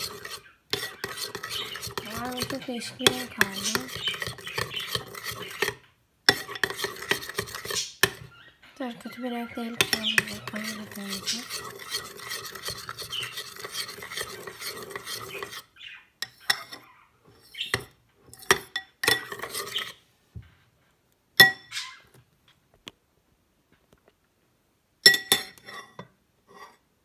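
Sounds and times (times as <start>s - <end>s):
spoon clinking against bowl: 0.0s - 8.3s, 9.6s - 15.6s, 16.2s - 16.8s, 17.7s - 19.9s, 25.1s - 26.0s
spoon stirring thick slime: 0.0s - 20.0s.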